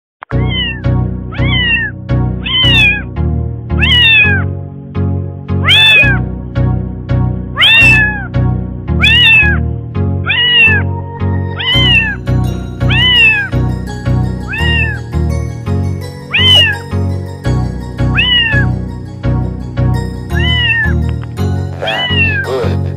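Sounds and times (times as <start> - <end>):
cat meowing: 0.3 - 3.1, 3.8 - 4.4, 5.6 - 6.2, 7.6 - 8.3, 9.0 - 9.6, 10.2 - 10.9, 11.5 - 12.2, 12.8 - 13.5, 14.5 - 15.0, 16.3 - 16.8, 18.1 - 18.7, 20.4 - 21.0, 21.8 - 22.5
background music with low beat: 16.4 - 22.9.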